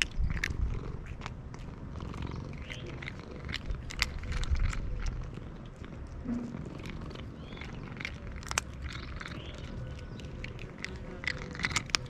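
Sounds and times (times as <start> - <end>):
cat crunching dry kibble: 0.0 - 12.0
cat purring: 0.0 - 12.0.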